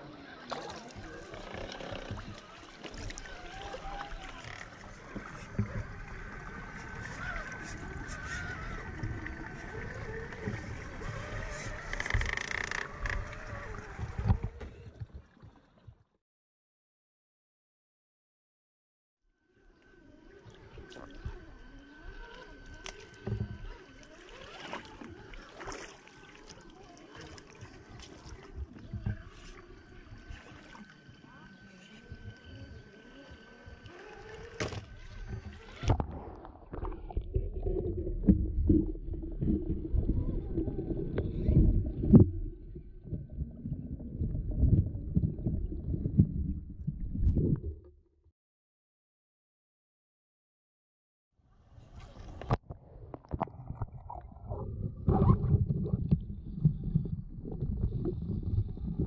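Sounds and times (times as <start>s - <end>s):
muffled underwater rumble: 0.0s - 16.1s, 19.5s - 48.0s, 51.6s - 59.0s
water splashing: 0.4s - 15.8s, 20.4s - 47.6s
electric motor and gears whining: 19.7s - 36.1s.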